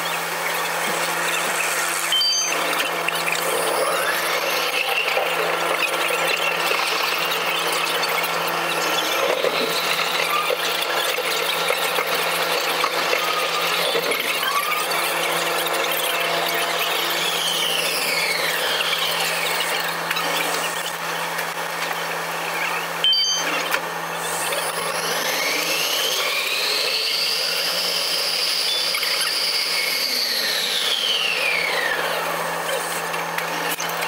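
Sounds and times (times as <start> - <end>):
train running noise: 0.0 - 28.4
train motor whining: 0.0 - 34.0.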